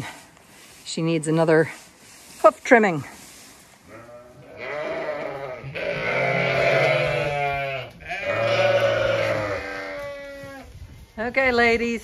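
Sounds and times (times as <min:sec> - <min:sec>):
sheep bleating: 0:03.9 - 0:10.6.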